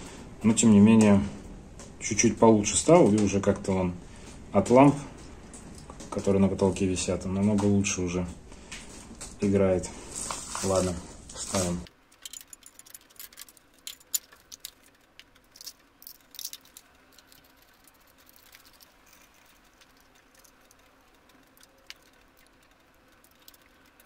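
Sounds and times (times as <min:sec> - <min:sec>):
faint steady hum: 0:00.0 - 0:24.0
light metallic clicks and rattles: 0:11.9 - 0:24.0.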